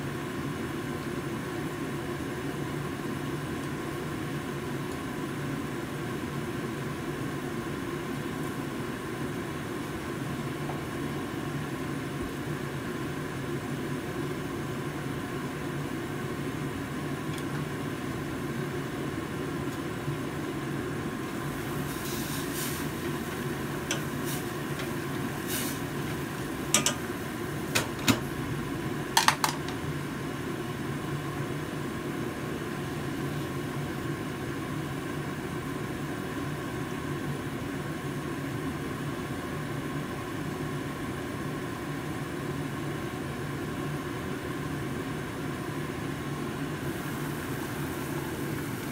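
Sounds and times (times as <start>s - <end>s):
stove and kitchen hum: 0.0s - 48.9s
soup simmering and hissing: 16.0s - 29.1s, 46.7s - 48.9s
chopsticks stirring soup: 22.4s - 27.1s
metallic clinks against pot: 26.8s - 27.0s.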